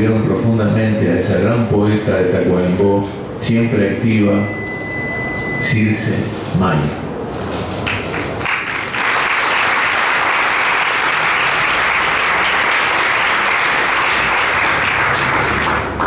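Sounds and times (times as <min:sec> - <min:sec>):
audience applauding: 0:07.8 - 0:16.0.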